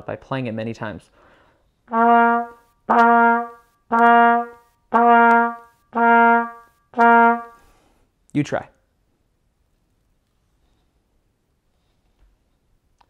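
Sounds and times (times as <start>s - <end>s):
trumpet playing one note: 1.9s - 7.7s.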